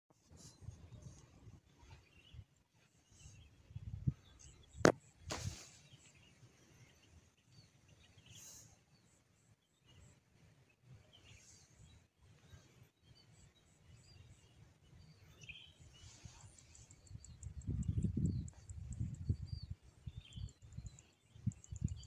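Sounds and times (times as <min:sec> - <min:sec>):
faint bird chirps: 0:00.3 - 0:22.0
wind rumbling on microphone: 0:03.2 - 0:05.7, 0:15.4 - 0:22.0
short rustle: 0:05.3 - 0:05.9.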